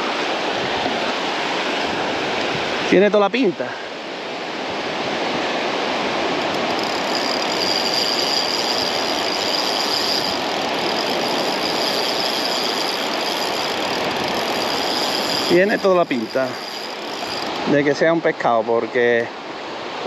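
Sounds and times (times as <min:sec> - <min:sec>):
surf rushing: 0:00.0 - 0:20.0
fishing reel whirring: 0:05.8 - 0:18.0.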